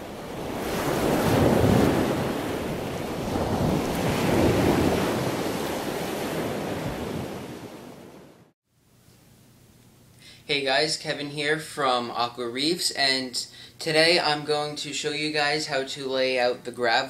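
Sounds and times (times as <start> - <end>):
ocean waves rushing: 0.0 - 8.5.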